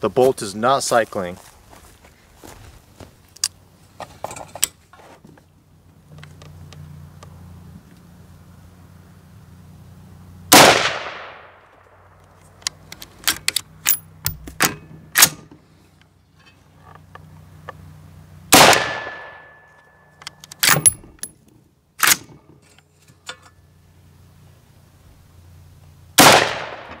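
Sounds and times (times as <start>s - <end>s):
rifle action metallic clacks: 12.6s - 15.4s, 20.2s - 21.4s
gunshots: 18.5s - 19.4s, 26.2s - 27.0s.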